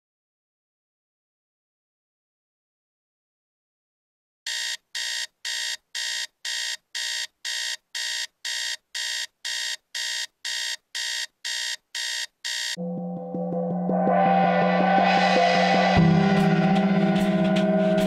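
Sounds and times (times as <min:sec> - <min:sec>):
digital alarm clock beeping: 0:04.5 - 0:12.8.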